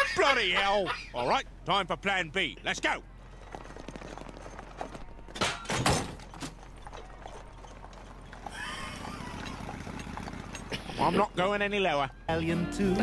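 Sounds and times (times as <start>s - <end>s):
hooves clip-clopping: 3.2s - 11.1s
horse neighing: 8.4s - 11.2s.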